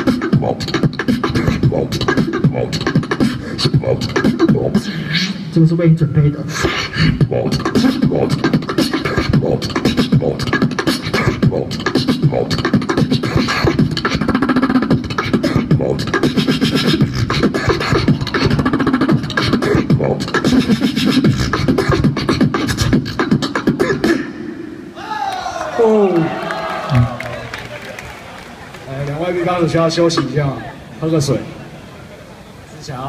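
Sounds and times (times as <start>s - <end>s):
beatboxing through speakers: 0.0s - 24.9s, 29.7s - 30.6s.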